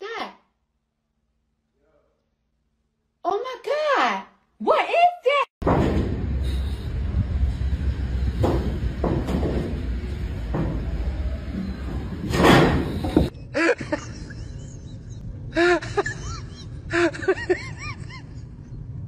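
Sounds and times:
sheet metal roof crash: 5.6s - 6.4s, 12.2s - 13.3s.

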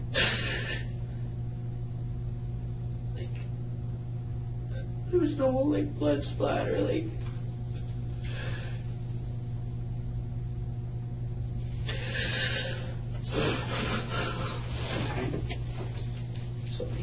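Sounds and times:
low electrical hum: 0.0s - 17.0s
person sniffing and breathing: 11.8s - 15.2s.

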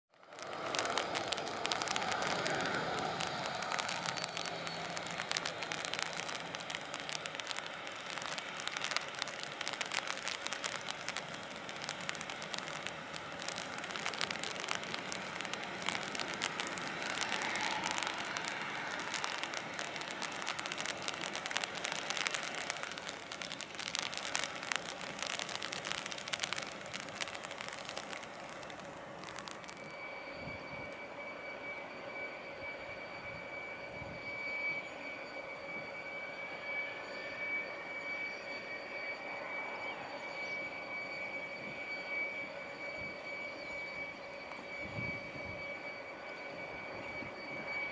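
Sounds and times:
jet engine rushing and crackling: 0.3s - 31.7s.

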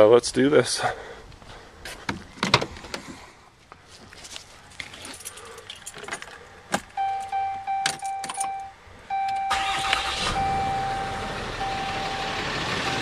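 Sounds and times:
diesel engine cranking and idling: 5.6s - 13.0s
ignition key clicking: 6.8s - 10.1s
dash chime steady tone: 7.0s - 9.6s, 10.4s - 13.0s.

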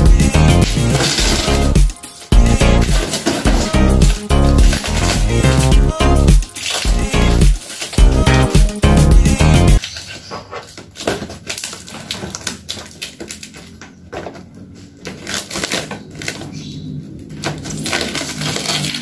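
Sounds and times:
background music: 0.0s - 9.8s
blade slicing packing tape: 0.3s - 5.7s, 6.3s - 8.0s, 15.0s - 16.6s, 17.2s - 19.0s.

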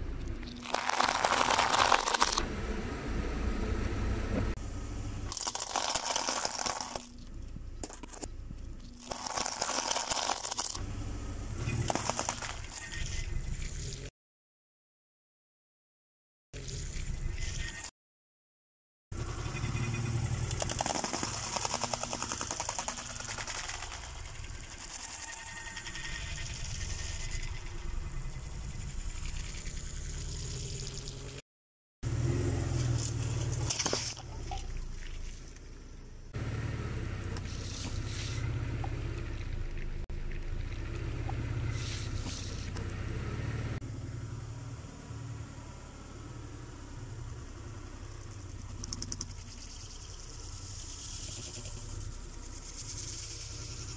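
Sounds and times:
car engine running: 0.0s - 5.8s, 19.2s - 31.4s, 32.1s - 53.9s
wheels crushing objects: 0.4s - 2.4s, 5.2s - 10.8s, 11.6s - 14.1s, 20.3s - 27.6s, 32.3s - 35.8s.

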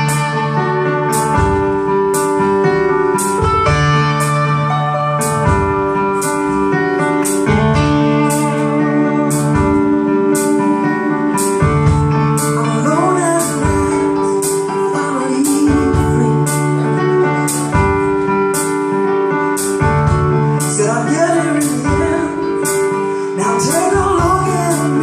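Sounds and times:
live rock band playing: 0.0s - 25.0s
woman singing: 12.4s - 17.5s, 20.6s - 25.0s.

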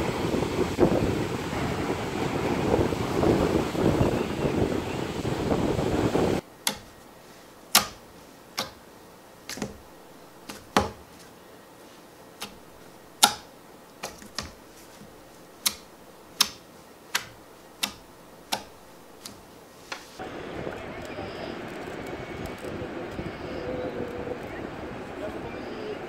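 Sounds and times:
wind and surf: 0.0s - 8.0s, 19.9s - 26.0s.

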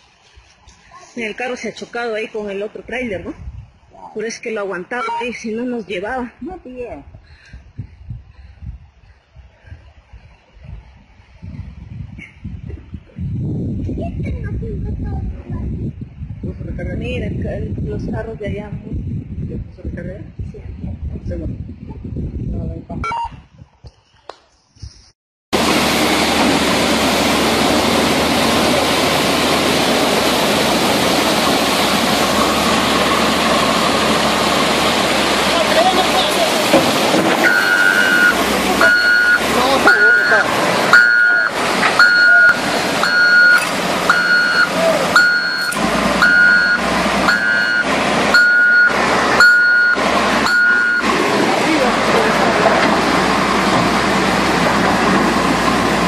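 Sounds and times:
backup alarm beeping: 5.0s - 5.4s, 23.0s - 23.4s, 37.4s - 51.1s
engine running: 25.6s - 56.0s
floodwater rushing: 25.6s - 56.0s.

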